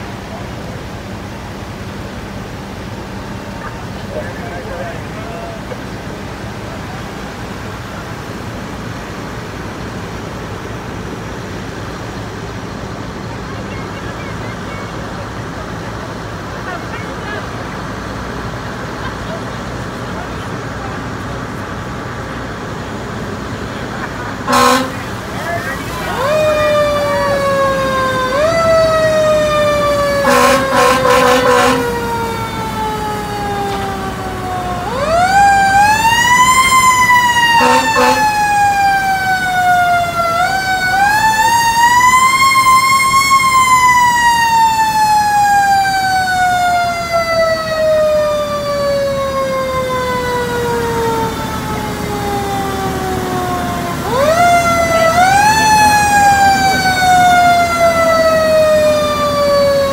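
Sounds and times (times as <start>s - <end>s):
horn blasts: 24.4s - 25.3s, 30.2s - 32.2s, 37.5s - 38.4s.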